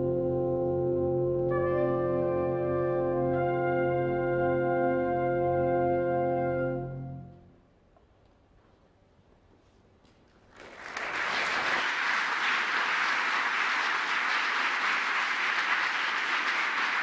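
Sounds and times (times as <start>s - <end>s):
audience applause: 10.5s - 17.0s.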